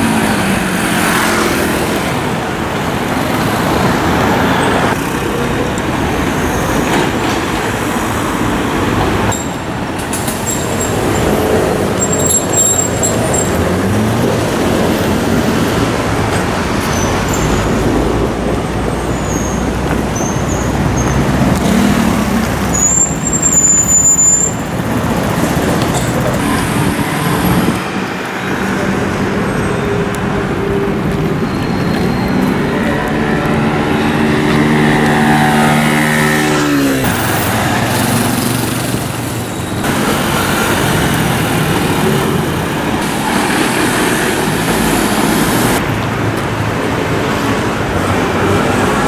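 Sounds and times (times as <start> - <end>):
motor scooters accelerating: 0.0 - 23.6, 24.5 - 49.0
passing cars and buses: 0.0 - 49.0
high-pitched squeals: 30.6 - 37.7.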